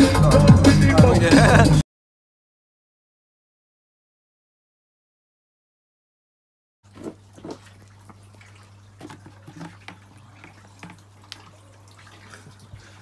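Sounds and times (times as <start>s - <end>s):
water sloshing and dripping: 6.8s - 13.0s.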